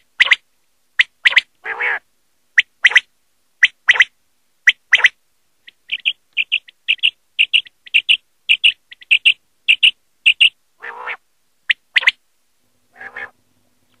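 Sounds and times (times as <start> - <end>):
quail calling: 1.0 - 2.0, 2.6 - 4.1, 4.7 - 12.2, 12.9 - 13.4.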